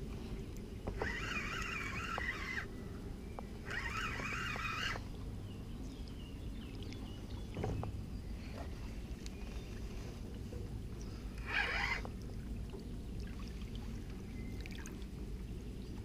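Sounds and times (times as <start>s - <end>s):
spinning reel gears whirring: 0.8s - 2.7s, 3.5s - 5.1s, 11.4s - 12.1s.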